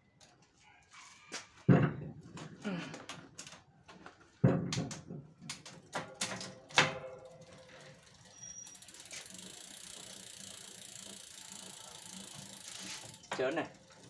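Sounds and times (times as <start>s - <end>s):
bicycle chain and crank rattling: 5.6s - 14.0s
freewheel ratchet ticking: 7.2s - 14.0s.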